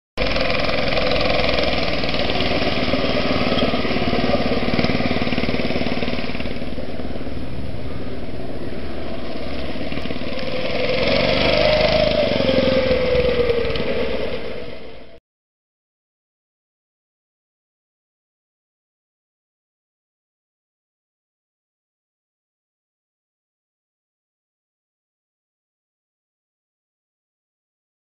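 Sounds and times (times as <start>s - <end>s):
engine running steadily: 0.2s - 15.2s.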